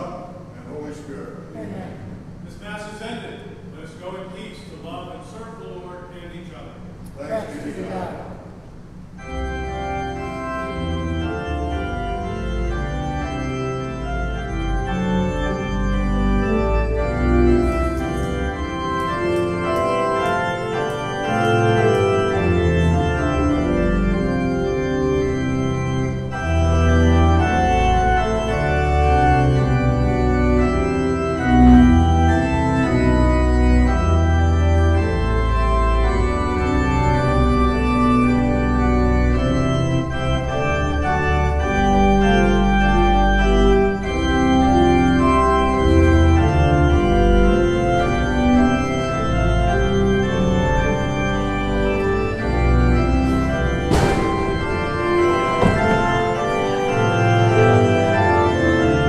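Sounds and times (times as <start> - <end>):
church organ chords: 0.0 - 59.0.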